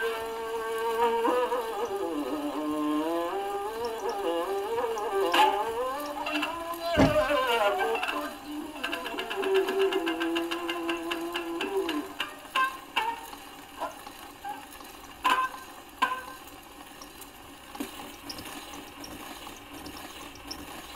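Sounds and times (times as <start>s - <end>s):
plucked strings on a record: 0.0s - 20.8s
record surface hiss: 0.0s - 20.9s.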